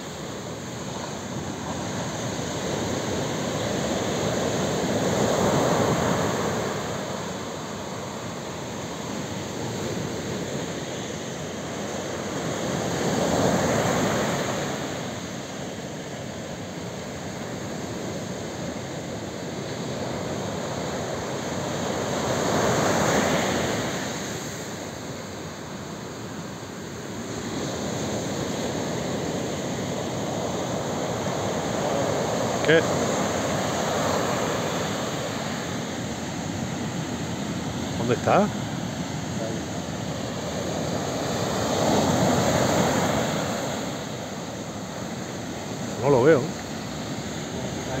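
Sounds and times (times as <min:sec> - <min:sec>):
waves breaking on a beach: 0:00.0 - 0:48.0.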